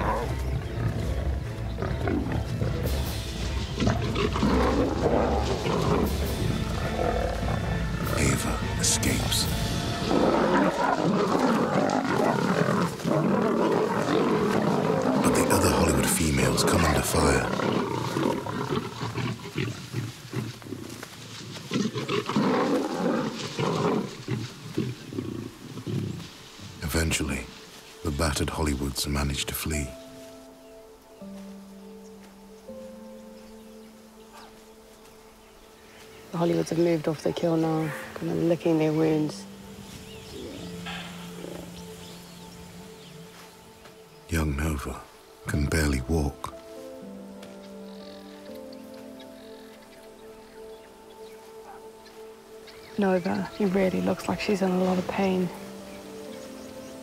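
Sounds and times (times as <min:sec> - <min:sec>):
lions snarling and growling: 0:00.0 - 0:26.8, 0:40.0 - 0:43.9, 0:47.9 - 0:54.1
low music score: 0:00.0 - 0:57.0.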